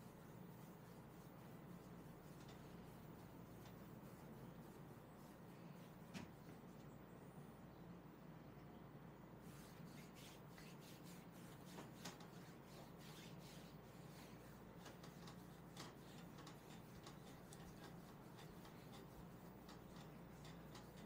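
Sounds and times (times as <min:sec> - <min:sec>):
skin-on-skin rubbing: 0:00.0 - 0:06.6, 0:09.4 - 0:21.0
small clicks and smacks: 0:02.1 - 0:04.0, 0:11.5 - 0:12.4, 0:14.1 - 0:21.0.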